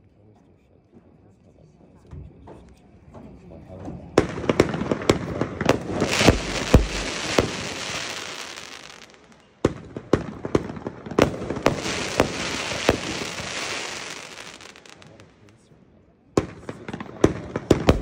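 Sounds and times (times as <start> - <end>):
fireworks bangs: 4.1 - 15.5, 16.4 - 18.0
fireworks hiss: 5.7 - 9.4, 11.2 - 15.3.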